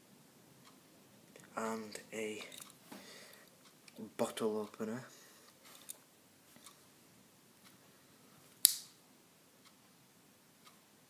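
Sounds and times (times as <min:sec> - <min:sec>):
sharp metallic snap: 0:08.6 - 0:09.0.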